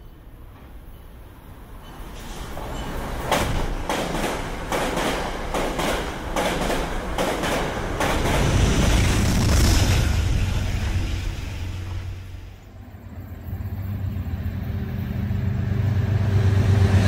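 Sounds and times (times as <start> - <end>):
train wheels clacking on rails: 1.8 - 12.1
deep train rumble: 1.8 - 17.0.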